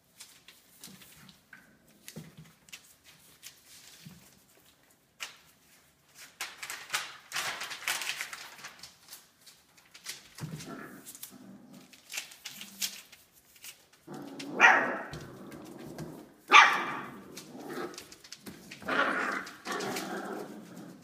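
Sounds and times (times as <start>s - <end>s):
puppies barking: 14.5s - 15.2s, 16.5s - 17.2s.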